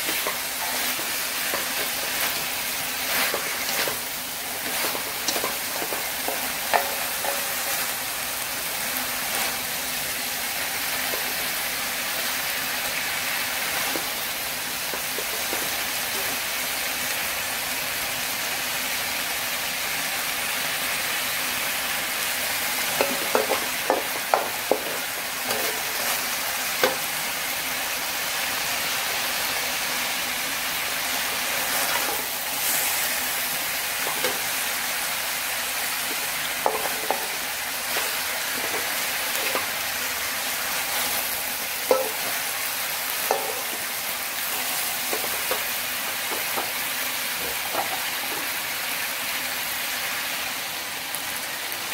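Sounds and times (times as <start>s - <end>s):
metal spatula scraping pan: 0.0s - 7.9s, 22.9s - 26.3s
food sizzling in a wok: 0.0s - 51.9s.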